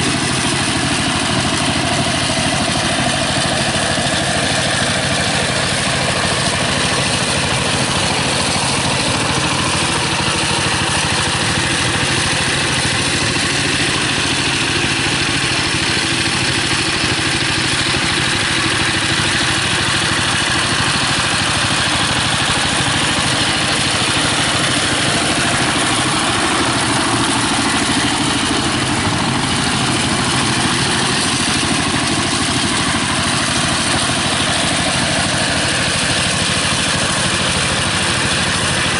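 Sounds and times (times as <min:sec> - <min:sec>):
diesel tractor engine running: 0:00.0 - 0:38.9.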